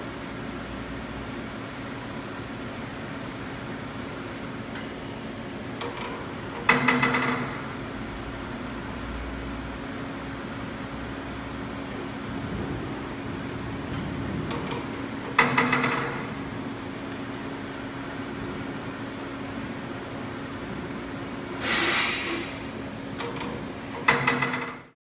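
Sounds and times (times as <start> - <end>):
machine humming: 0.0 - 25.0
short hissing rush: 21.6 - 22.6.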